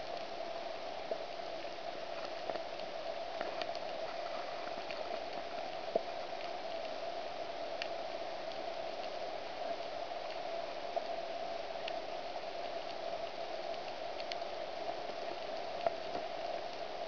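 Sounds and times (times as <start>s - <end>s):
steady underwater hiss: 0.0s - 17.0s
sharp clicks and crackles: 1.5s - 7.0s, 12.8s - 16.9s.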